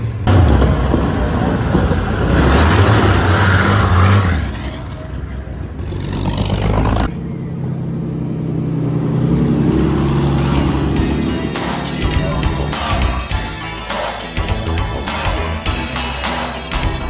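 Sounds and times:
racing car engine passing: 0.2s - 13.3s.

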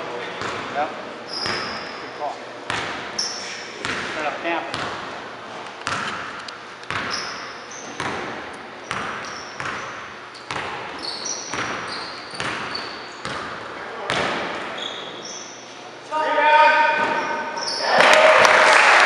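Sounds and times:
sneakers squeaking on court: 0.2s - 5.0s, 5.8s - 15.8s, 17.0s - 17.8s
basketball bouncing on gym floor: 0.4s - 1.9s, 2.7s - 3.2s, 3.8s - 5.2s, 5.8s - 14.7s.

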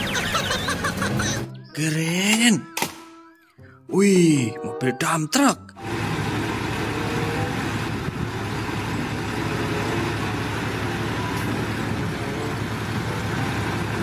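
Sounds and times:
diesel truck engine revving: 5.8s - 14.0s.

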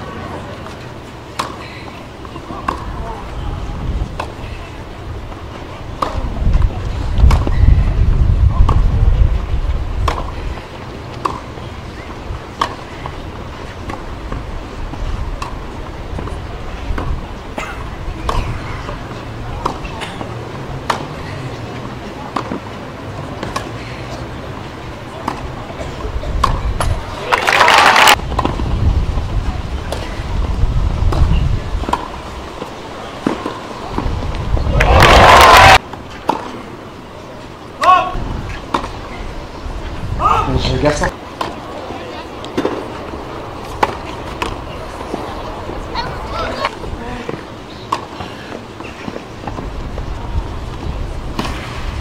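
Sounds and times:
tennis ball struck by rackets: 0.6s - 1.6s, 2.2s - 3.0s, 6.0s - 6.3s, 7.2s - 7.6s, 10.0s - 10.4s, 11.1s - 14.5s, 15.4s - 17.2s, 18.2s - 21.1s, 25.1s - 25.6s, 31.1s - 34.2s, 36.2s - 36.6s, 38.7s - 39.0s, 42.4s - 45.3s, 50.7s - 51.9s
tennis ball being struck: 2.3s - 2.9s, 11.2s - 11.5s.

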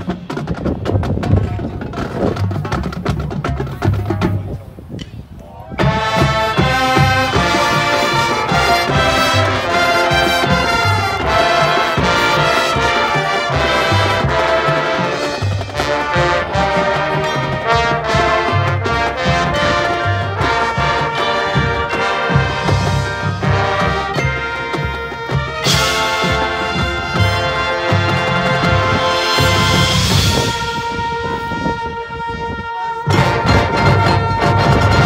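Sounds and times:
brass chords: 5.8s - 35.0s.

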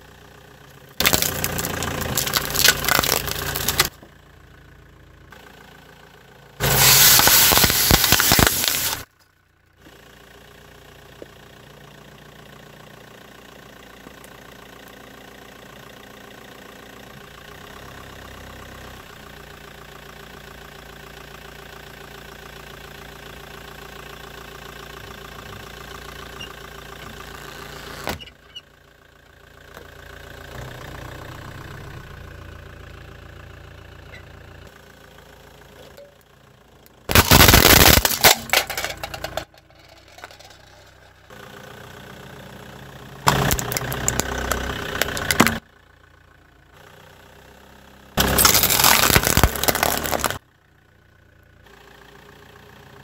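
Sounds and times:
car engine idling: 0.0s - 53.0s
tyre crushing objects: 1.0s - 3.9s, 37.1s - 39.1s, 48.2s - 50.4s.

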